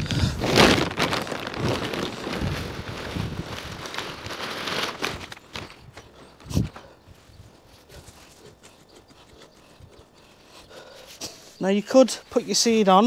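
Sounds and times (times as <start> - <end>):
soil pattering: 0.0 - 6.6
plastic bag crinkling: 0.1 - 6.2.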